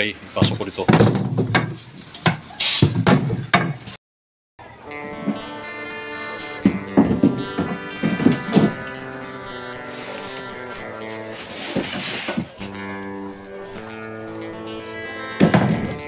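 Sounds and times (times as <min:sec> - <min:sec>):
wooden boards knocking: 0:00.4 - 0:03.9, 0:15.4 - 0:16.0
guitar music: 0:04.6 - 0:16.0.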